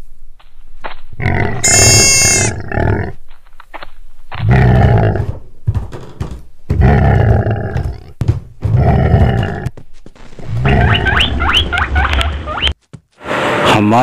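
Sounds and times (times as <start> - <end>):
deep animal calls: 10.4 - 12.8.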